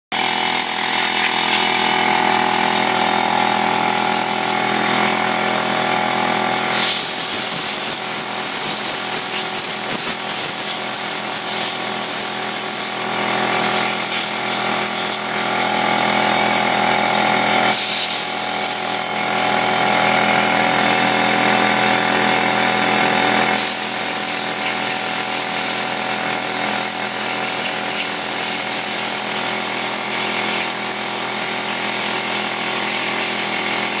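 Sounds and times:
machine motor humming: 0.2s - 8.0s
hiss: 3.5s - 5.4s, 6.7s - 15.8s, 17.7s - 19.0s, 23.6s - 34.0s.

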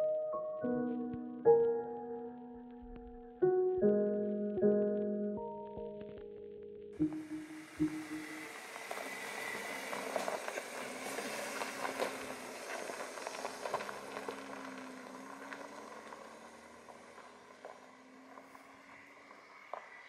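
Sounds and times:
faint car engine: 7.5s - 20.0s
tyres crunching on gravel: 8.6s - 19.9s.

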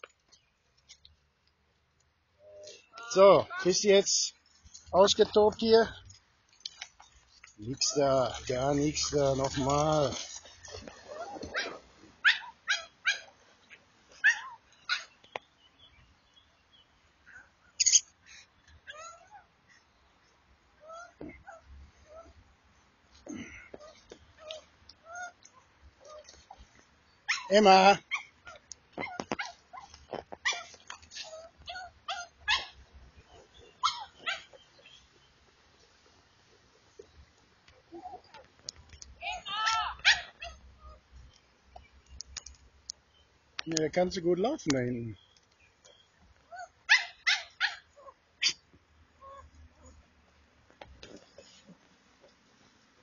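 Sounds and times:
dog yelping and whining: 11.1s - 13.3s, 14.1s - 15.1s, 18.9s - 19.5s, 20.8s - 22.4s, 23.8s - 26.7s, 27.3s - 32.8s, 33.4s - 34.6s
dog yipping and barking: 11.1s - 13.3s, 14.2s - 15.1s, 27.2s - 32.8s, 33.8s - 34.6s, 39.3s - 41.0s, 46.5s - 50.0s.

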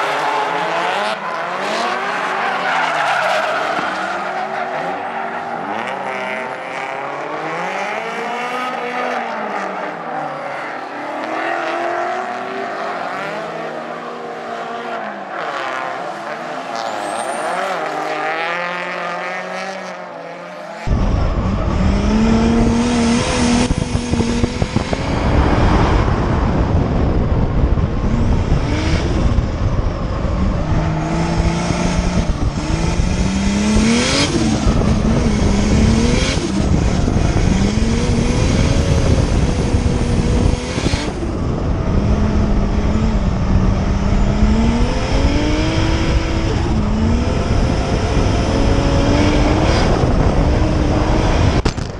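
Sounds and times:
car engine revving hard: 0.0s - 10.0s, 20.8s - 51.7s
wind rumble on microphone: 20.9s - 51.9s.

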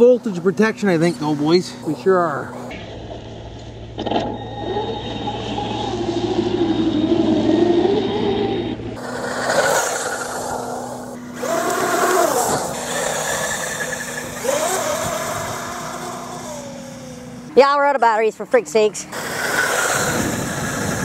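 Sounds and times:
tyres on dirt: 0.0s - 17.9s, 18.9s - 21.0s
electric motor whining: 4.0s - 17.5s, 19.0s - 21.0s
wind hiss: 19.1s - 21.0s.

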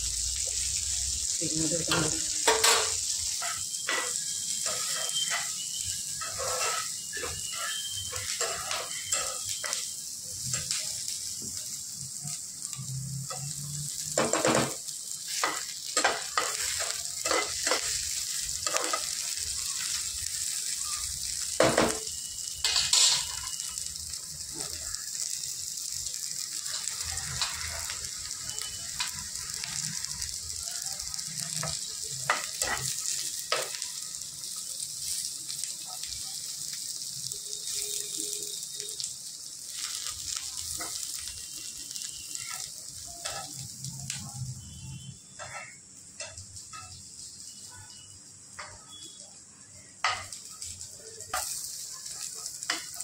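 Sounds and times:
food sizzling in oil: 0.0s - 53.0s
spoon scraping and knocking pan: 1.9s - 5.6s, 6.2s - 9.9s, 14.2s - 19.3s, 22.6s - 23.6s, 45.3s - 47.0s.

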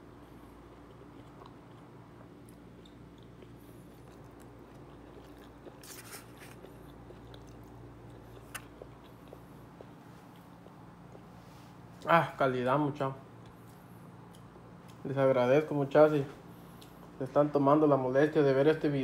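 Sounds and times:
person chewing food: 0.0s - 12.1s, 13.3s - 15.0s, 16.5s - 17.2s
steady low hum: 0.0s - 19.0s.

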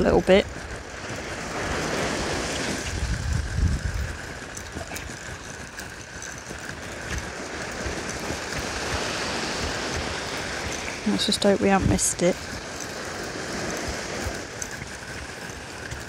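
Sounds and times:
surf breaking on beach: 0.0s - 4.8s, 7.1s - 15.8s
wind rumbling on microphone: 0.0s - 16.0s.

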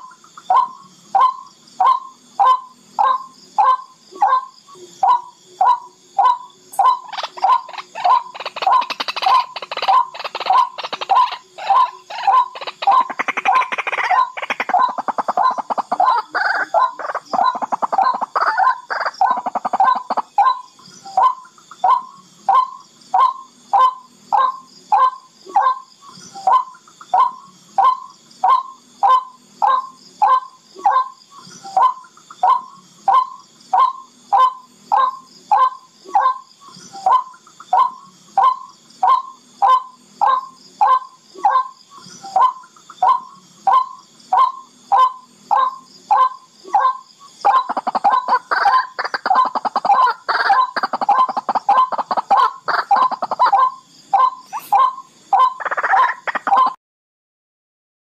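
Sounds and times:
bird harsh chattering: 5.2s - 22.1s, 44.4s - 56.8s.

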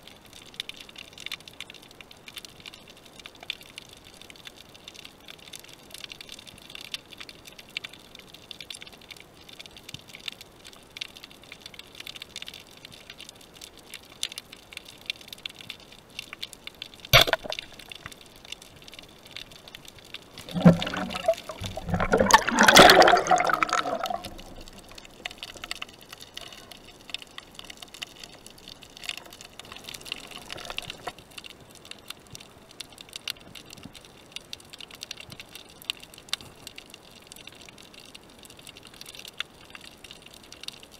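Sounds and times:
faint crackling hiss: 0.0s - 40.9s
water bubbling and gurgling: 20.2s - 27.7s, 28.3s - 31.2s.

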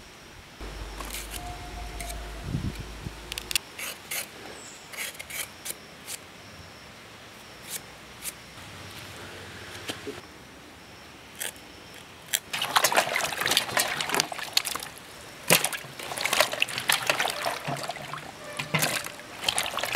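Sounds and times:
low rumble: 0.6s - 3.6s.

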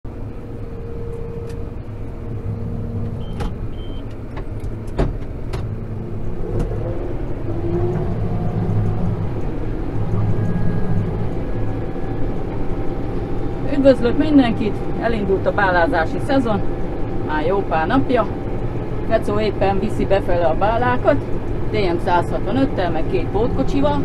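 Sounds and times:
tractor engine running: 0.1s - 24.0s
short high beeps: 3.2s - 4.1s.

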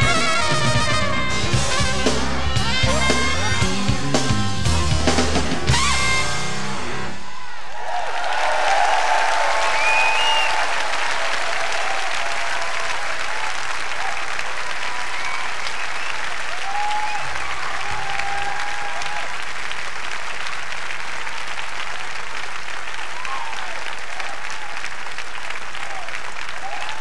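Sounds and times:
crowd cheering: 5.1s - 27.0s
audience applauding: 6.9s - 27.0s.

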